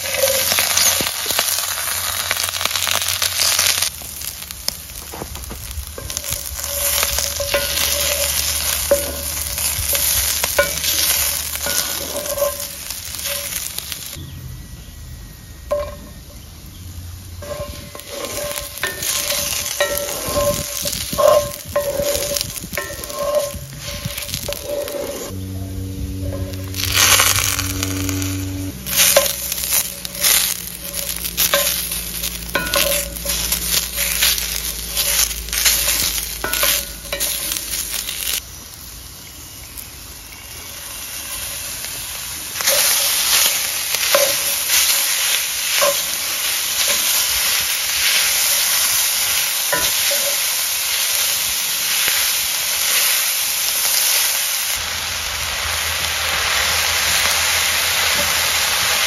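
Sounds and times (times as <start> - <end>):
vegetables sizzling in skillet: 0.0 - 14.9, 15.5 - 59.0
stirring knocks and scrapes on pan: 5.0 - 13.6, 17.4 - 25.3.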